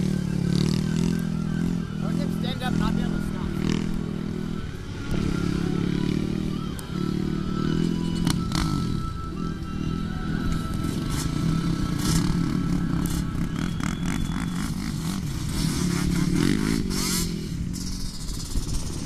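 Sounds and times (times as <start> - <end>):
quad engine revving: 0.0 - 19.0.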